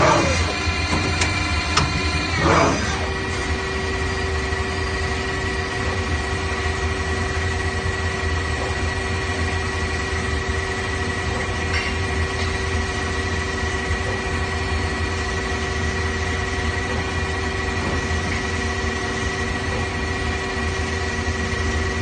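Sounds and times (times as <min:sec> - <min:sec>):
lathe high whine: 0:00.0 - 0:22.0
lathe low hum: 0:00.0 - 0:22.0.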